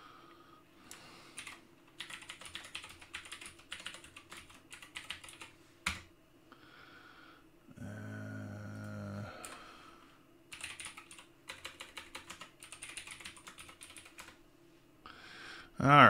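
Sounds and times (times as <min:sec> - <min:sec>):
computer keyboard typing: 0:01.4 - 0:06.1, 0:10.5 - 0:14.4.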